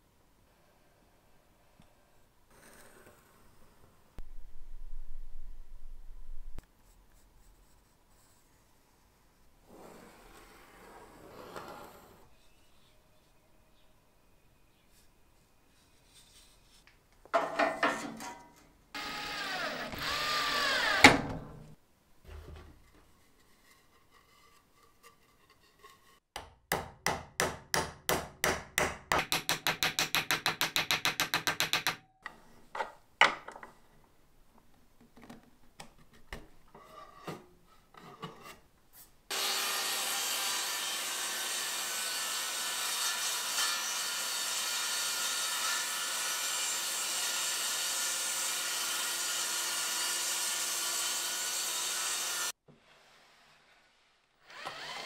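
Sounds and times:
power tool running: 19.0s - 21.4s, 39.3s - 42.7s, 54.5s - 55.0s.

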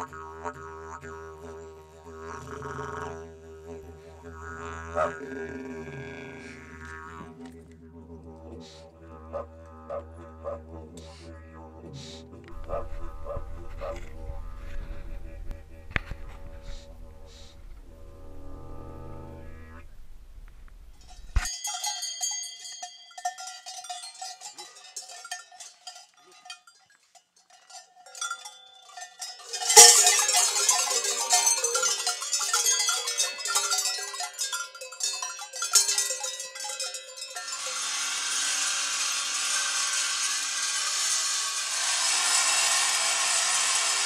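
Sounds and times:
rasping scraping noise: 0.0s - 21.5s, 37.4s - 44.0s
cowbells ringing and clanking: 21.0s - 44.0s
loud strike on bells: 29.2s - 34.6s.

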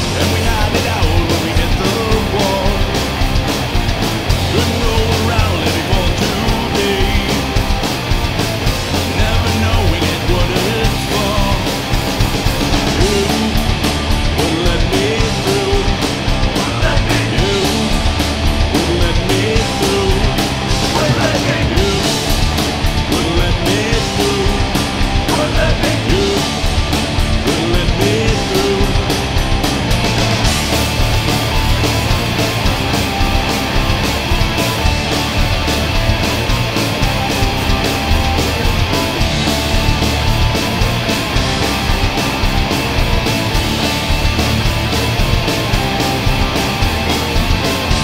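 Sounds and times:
bass guitar: 0.0s - 48.0s
drums playing: 0.0s - 48.0s
electric guitars: 0.0s - 48.0s.

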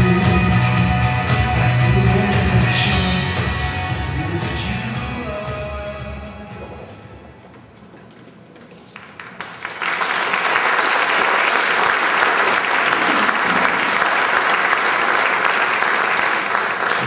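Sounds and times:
audience applauding: 8.7s - 17.0s.

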